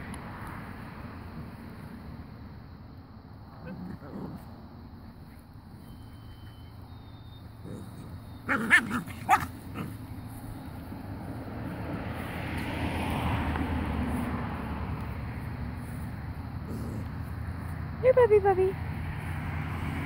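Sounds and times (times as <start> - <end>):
puppies barking and yipping: 6.5 - 10.5.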